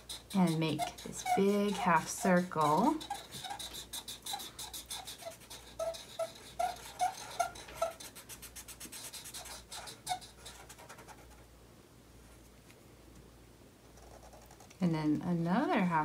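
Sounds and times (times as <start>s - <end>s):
felt tip squeaks: 0.0s - 8.1s
markers scratching on paper: 0.0s - 11.4s.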